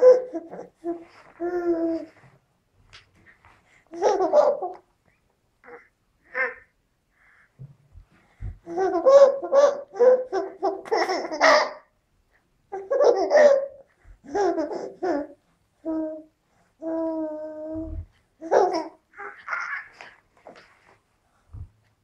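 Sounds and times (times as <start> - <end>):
baby giggling: 0.0 - 2.1, 3.9 - 4.8, 8.6 - 11.9, 12.7 - 16.2, 17.8 - 20.2
baby babbling: 5.6 - 6.8, 14.3 - 20.1.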